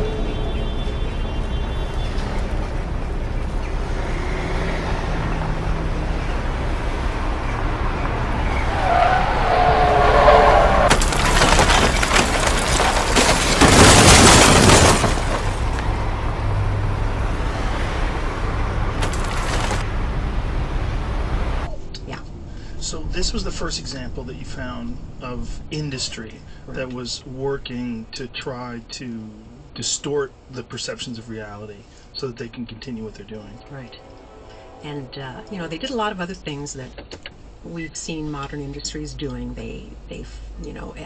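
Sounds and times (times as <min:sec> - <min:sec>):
wavering tyre squeal: 0:07.9 - 0:11.8
truck crashing through trees: 0:08.6 - 0:16.2, 0:18.8 - 0:19.9.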